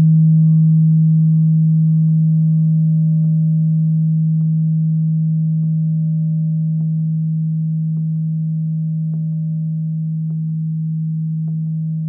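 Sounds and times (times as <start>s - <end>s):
singing bowl ringing: 0.0s - 11.6s.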